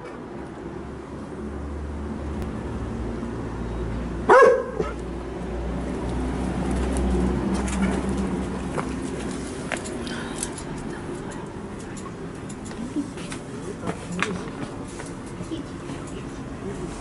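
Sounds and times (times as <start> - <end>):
dog barking: 4.3 - 5.0.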